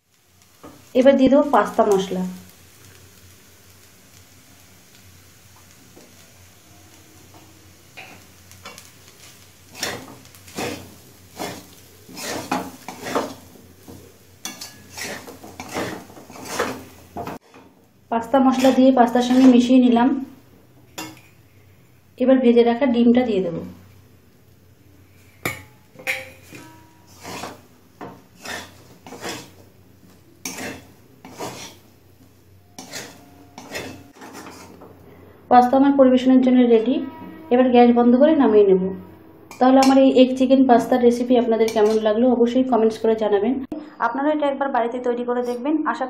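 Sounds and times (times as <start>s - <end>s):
wooden spatula scraping metal pan: 8.0s - 17.8s, 18.5s - 19.8s, 25.4s - 29.7s, 30.4s - 31.8s, 32.7s - 34.9s.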